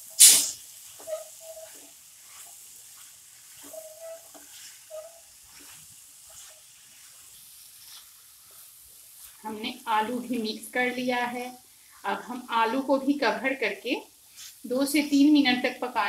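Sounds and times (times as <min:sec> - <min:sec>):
vegetables sizzling: 0:00.0 - 0:16.0
spatula scraping a pan: 0:00.1 - 0:09.6.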